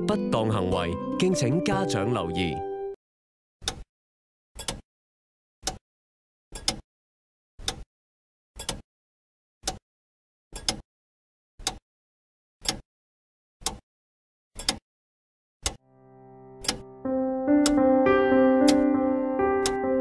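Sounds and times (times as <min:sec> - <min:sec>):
clock ticking: 0:06.6 - 0:06.8, 0:09.6 - 0:09.8, 0:10.6 - 0:10.8, 0:11.6 - 0:11.8, 0:12.6 - 0:12.8, 0:13.6 - 0:13.8, 0:14.6 - 0:14.8, 0:15.6 - 0:15.8, 0:16.6 - 0:16.8, 0:17.5 - 0:17.9, 0:18.6 - 0:19.0, 0:19.6 - 0:20.0.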